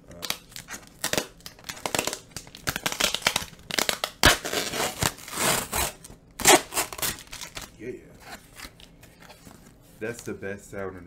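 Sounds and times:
cardboard cracking: 0.1s - 7.7s
cardboard tearing: 0.1s - 7.7s.

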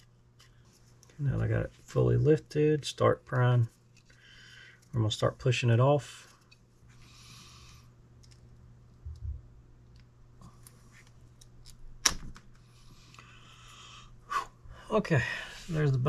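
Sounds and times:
faint clicks and light scraping: 8.2s - 9.2s.

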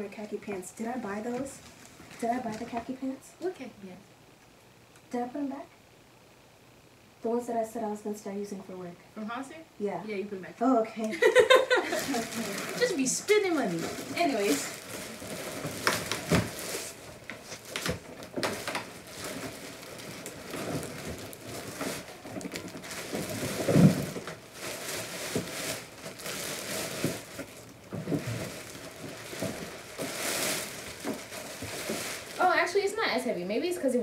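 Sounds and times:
plastic packaging crinkling: 0.2s - 3.0s, 11.2s - 33.2s.

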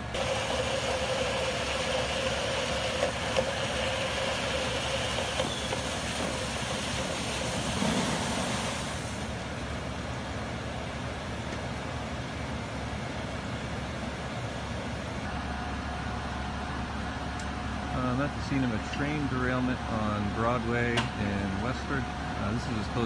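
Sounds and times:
fire hose water rushing hiss: 0.0s - 9.6s
fire engine running: 0.0s - 23.0s.

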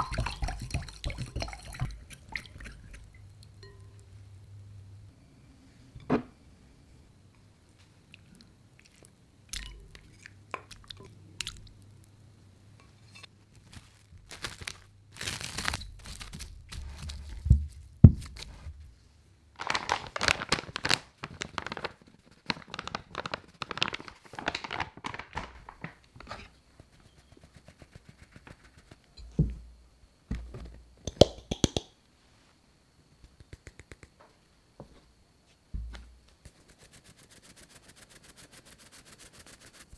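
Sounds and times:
crinkling and rustling: 13.2s - 18.9s, 19.6s - 26.6s.

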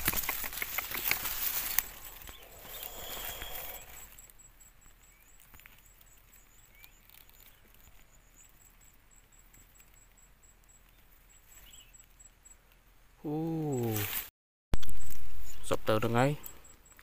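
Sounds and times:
faint short chirps: 2.0s - 4.7s
high-pitched pulsing: 2.1s - 4.1s.

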